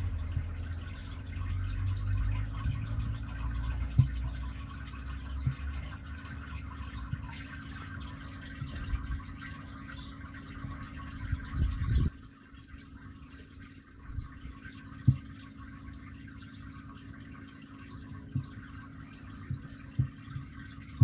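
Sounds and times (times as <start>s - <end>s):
low steady hum: 0.0s - 21.0s
water trickling and splashing: 0.0s - 21.0s.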